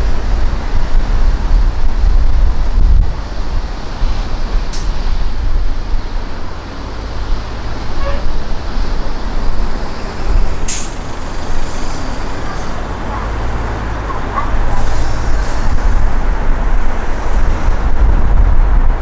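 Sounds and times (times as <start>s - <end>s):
road and traffic rumble: 0.0s - 19.0s
air brakes hissing: 10.0s - 12.9s, 14.7s - 15.8s.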